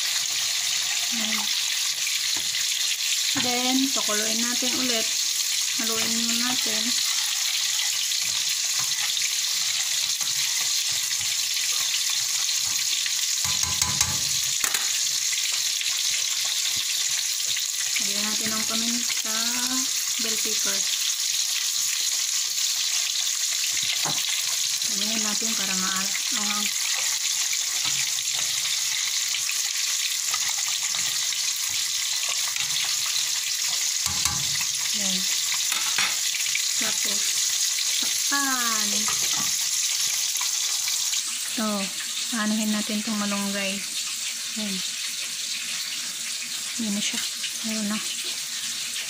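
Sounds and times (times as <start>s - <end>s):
fish sizzling in hot oil: 0.0s - 49.0s
spoon stirring and knocking pot: 5.9s - 17.2s, 23.7s - 24.6s, 26.7s - 34.9s, 35.5s - 36.3s, 39.0s - 39.6s.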